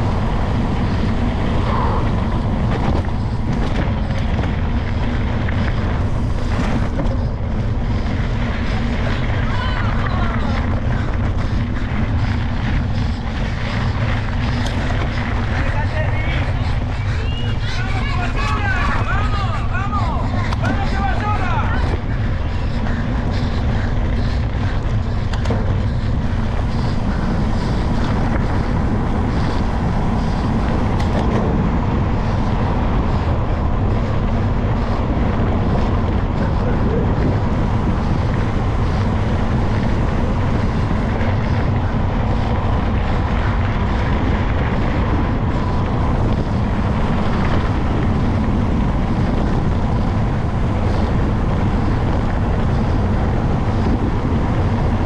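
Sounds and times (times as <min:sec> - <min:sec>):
wind buffeting on microphone: 0:00.0 - 0:55.0.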